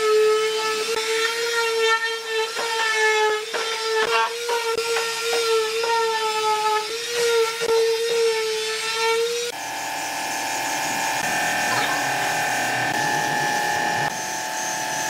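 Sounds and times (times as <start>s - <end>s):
palm sander motor whine: 9.3s - 15.0s.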